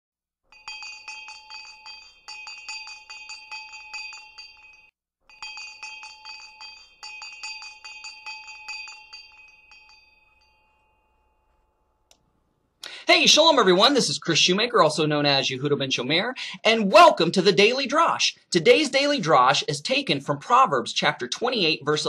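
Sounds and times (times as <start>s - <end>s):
chimes ringing: 0.5s - 11.9s.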